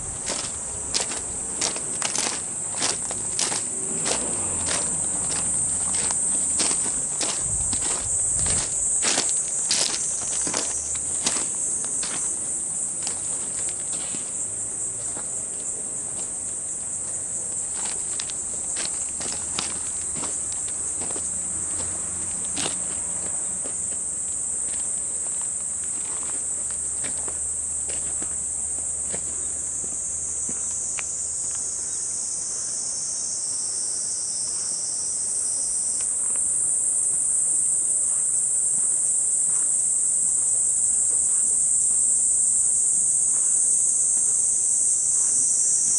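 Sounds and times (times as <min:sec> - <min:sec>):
footsteps on path: 0:00.0 - 0:31.6, 0:38.0 - 0:40.1, 0:43.0 - 0:44.4
insects chorus: 0:00.0 - 0:45.9.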